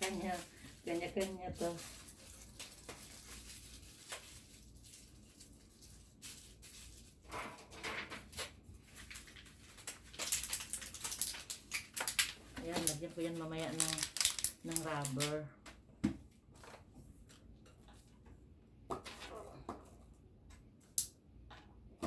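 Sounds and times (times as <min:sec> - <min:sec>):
plastic containers rustling: 0:00.0 - 0:05.5, 0:06.1 - 0:15.4
plastic crackling: 0:00.0 - 0:07.2, 0:08.1 - 0:15.5.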